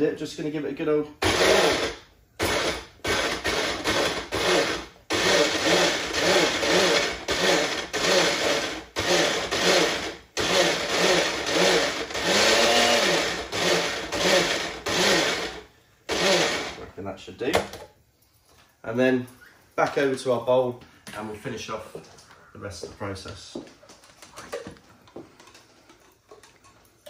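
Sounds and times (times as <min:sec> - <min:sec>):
blender motor pulsing: 0:01.2 - 0:16.8.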